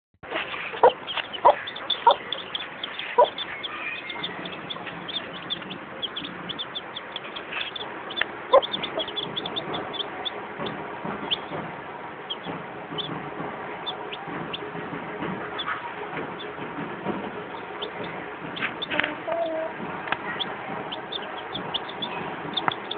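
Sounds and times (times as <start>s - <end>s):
hen clucking: 0.2s - 13.2s, 13.8s - 22.9s
chicks peeping: 0.2s - 22.9s.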